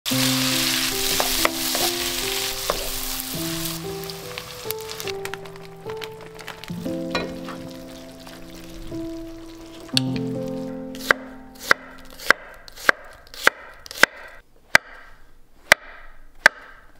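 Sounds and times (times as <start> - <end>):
bacon sizzling in frying pan: 0.1 - 12.2
calm music with held notes: 0.1 - 12.4.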